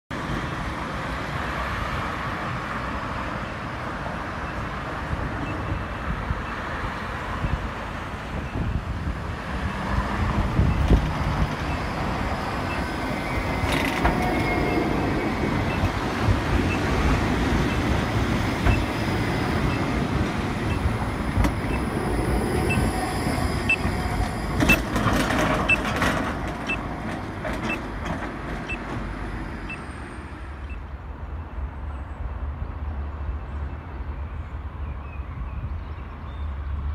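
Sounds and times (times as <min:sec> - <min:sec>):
tram rumbling: 0:00.1 - 0:36.9
wheels squealing: 0:11.6 - 0:17.0.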